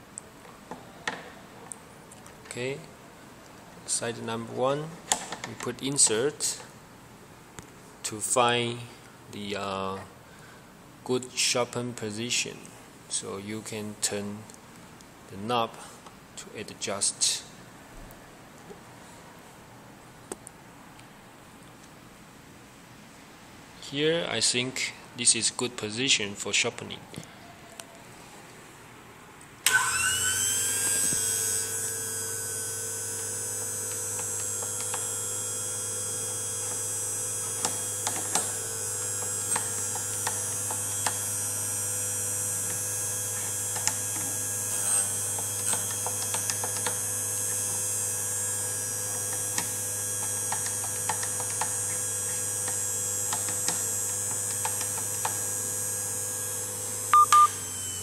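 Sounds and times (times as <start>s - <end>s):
grinder motor humming and whining: 29.7s - 58.0s.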